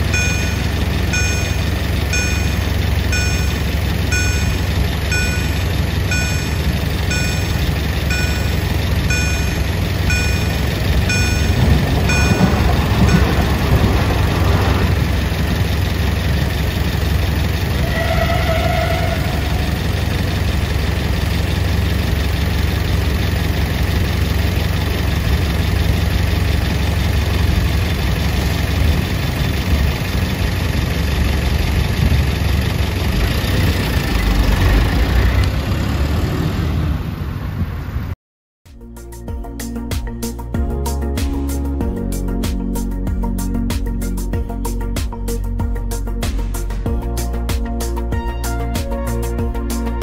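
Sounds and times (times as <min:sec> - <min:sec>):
diesel truck engine idling: 0:00.0 - 0:38.1.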